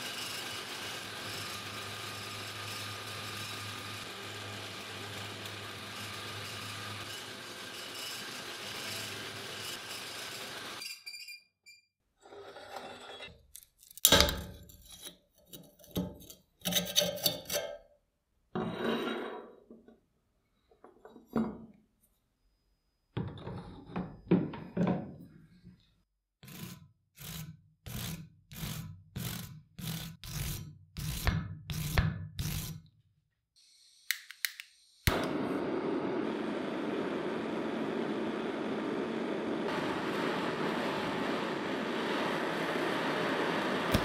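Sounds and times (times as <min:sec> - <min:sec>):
end mill cutting steel: 0:00.0 - 0:10.8
hand tool scraping metal: 0:12.2 - 0:17.8, 0:26.4 - 0:32.8.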